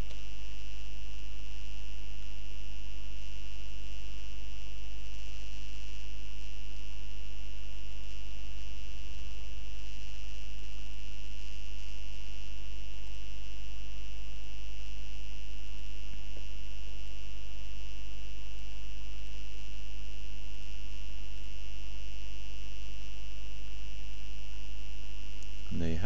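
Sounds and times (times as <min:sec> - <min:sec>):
low mains hum: 0:00.0 - 0:26.0
faint ticks: 0:03.1 - 0:03.9, 0:04.9 - 0:05.2, 0:06.6 - 0:07.1, 0:07.8 - 0:15.0, 0:15.7 - 0:21.7, 0:23.6 - 0:25.8.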